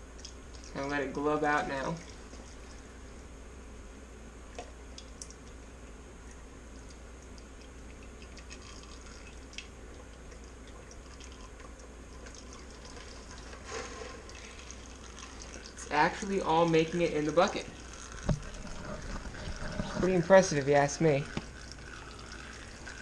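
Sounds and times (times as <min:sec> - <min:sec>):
oil trickling into a bucket: 0:06.3 - 0:23.0.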